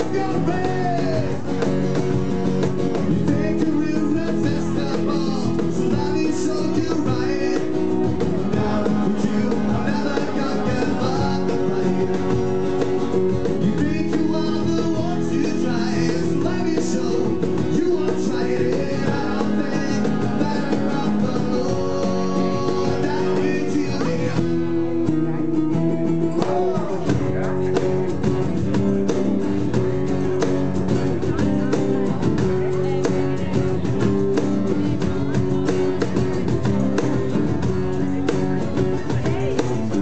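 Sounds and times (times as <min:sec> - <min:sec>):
man singing lead vocal: 0:00.0 - 0:01.8, 0:02.9 - 0:28.0
cajon drumming: 0:00.0 - 0:40.0
strummed acoustic guitars: 0:00.0 - 0:40.0.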